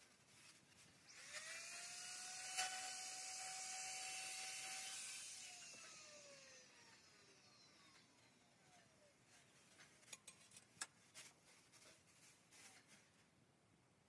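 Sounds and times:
power tool motor whine: 1.1 - 9.1.

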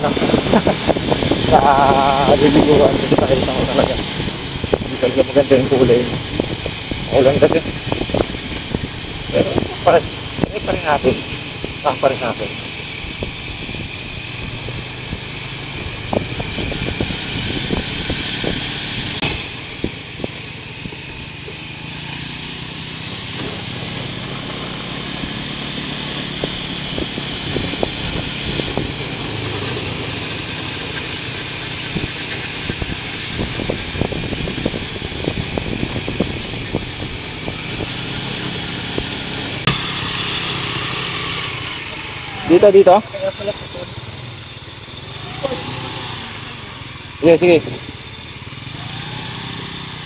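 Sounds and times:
wind noise: 0.0 - 22.0, 22.6 - 39.7
motorcycle engine running: 0.0 - 50.0
road noise: 0.0 - 50.0.

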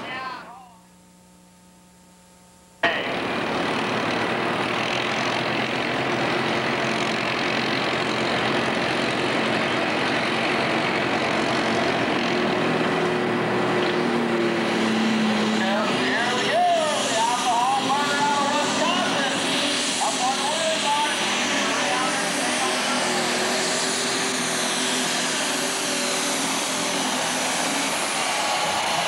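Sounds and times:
faint steady hum: 0.0 - 3.1
diesel tractor engine running: 2.8 - 29.0.

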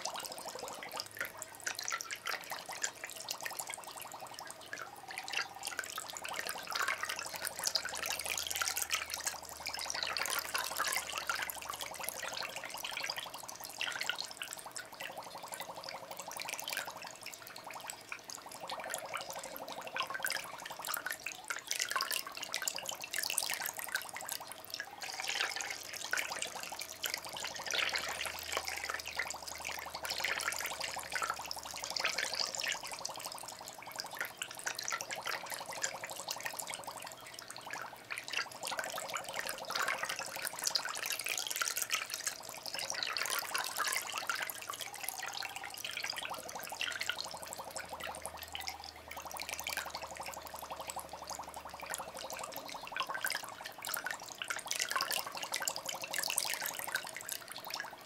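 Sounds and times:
water drips and splashes: 0.0 - 58.0
water trickling and bubbling: 0.0 - 58.0.

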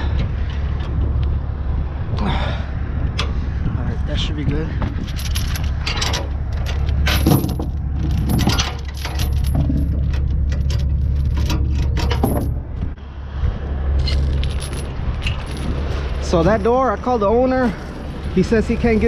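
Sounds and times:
metal chain rattling and clanking: 4.8 - 12.8, 14.0 - 16.8.

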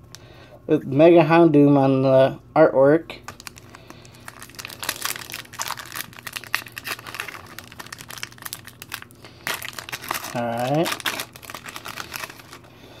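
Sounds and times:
plastic wrapper crinkling: 3.2 - 12.8.

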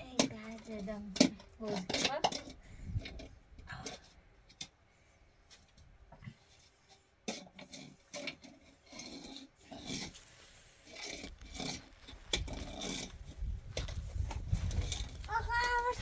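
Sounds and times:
short rasping scrapes: 7.6 - 13.2.

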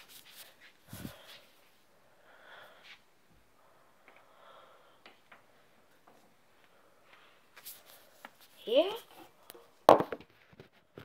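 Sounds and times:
faint breaths: 0.2 - 8.6.

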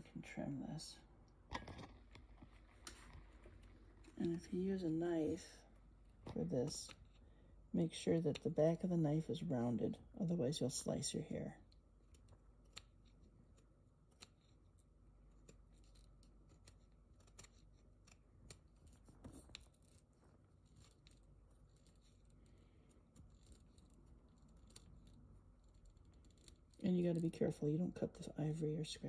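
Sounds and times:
small knife trimming horsehair: 15.3 - 27.3.

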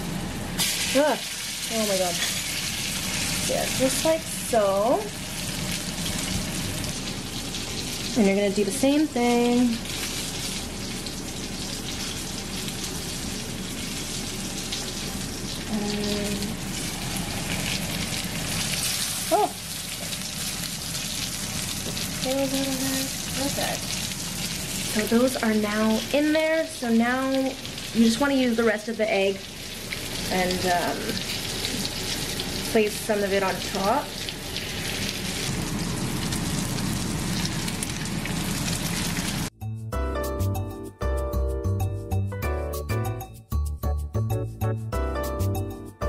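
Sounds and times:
eggplant frying in hot oil: 0.6 - 39.5
background music with beat: 39.6 - 46.0.

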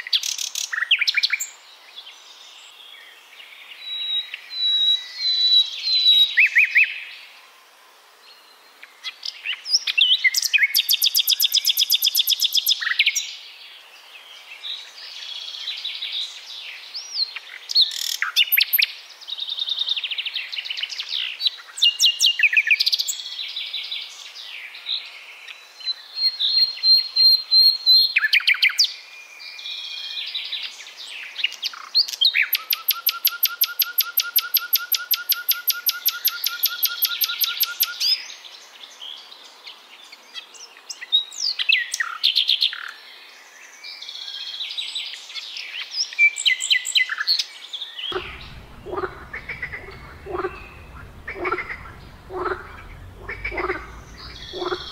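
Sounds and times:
nightingale singing: 31.7 - 38.1, 48.1 - 54.9.

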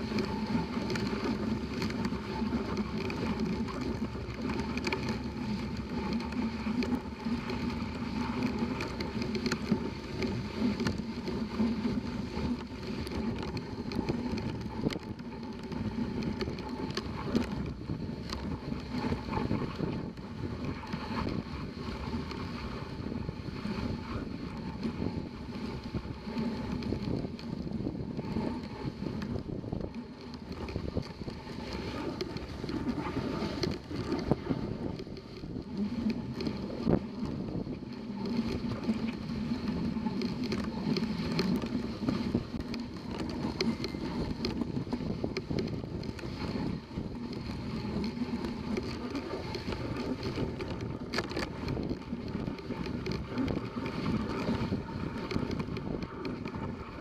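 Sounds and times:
sled runners hissing on snow: 0.0 - 26.7, 46.2 - 51.0
sled knocks and rattles: 0.0 - 57.0.

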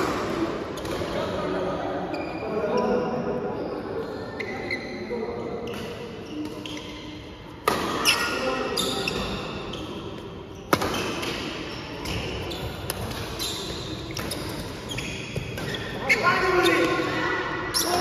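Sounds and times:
rackets striking shuttlecock: 10.7 - 12.2.

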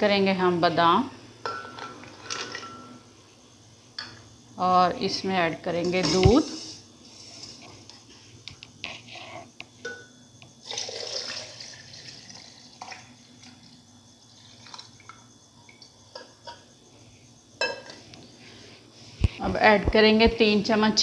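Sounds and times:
milk pouring into blender jar: 10.6 - 13.7, 14.3 - 15.2.

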